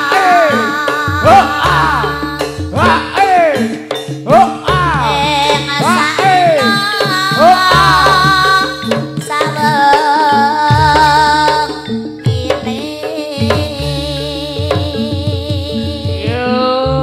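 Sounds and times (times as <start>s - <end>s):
hand drums beating: 0.0s - 17.0s.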